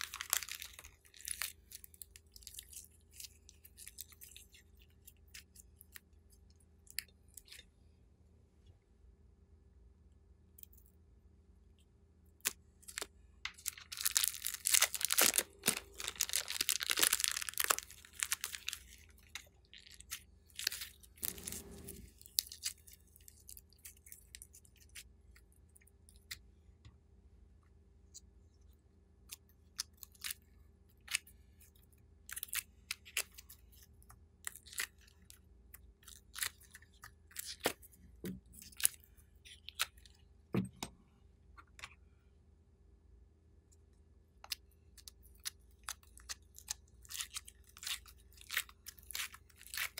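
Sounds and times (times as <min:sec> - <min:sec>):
plastic bag crinkling: 0:00.0 - 0:01.8, 0:12.8 - 0:22.5.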